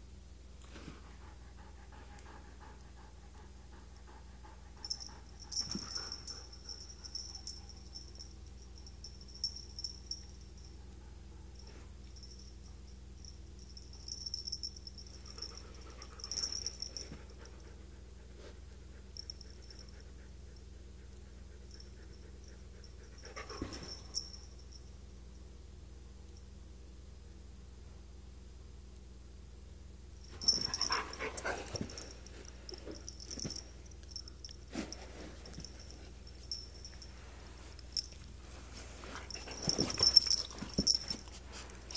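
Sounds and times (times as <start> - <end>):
dog panting: 1.1 - 7.3, 30.6 - 33.5.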